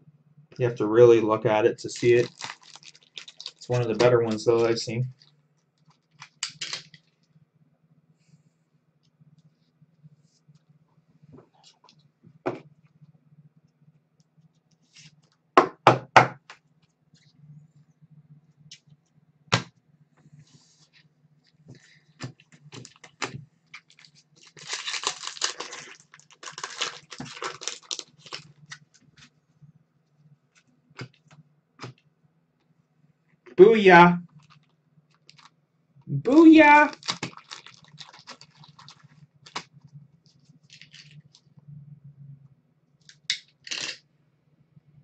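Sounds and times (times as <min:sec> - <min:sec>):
faint low hum: 0:00.0 - 0:45.0.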